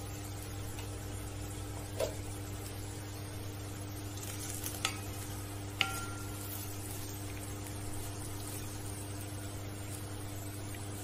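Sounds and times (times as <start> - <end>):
potatoes sizzling in wok: 0.0 - 11.0
spatula knocking on wok: 4.8 - 6.5.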